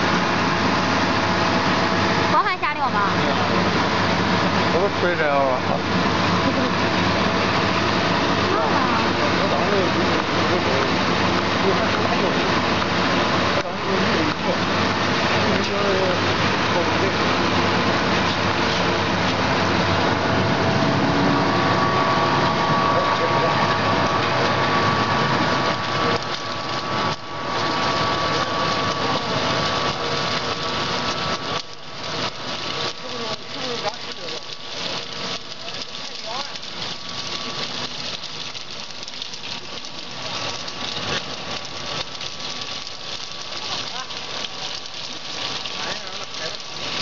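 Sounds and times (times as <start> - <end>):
food extruder motor running: 15.5 - 47.0.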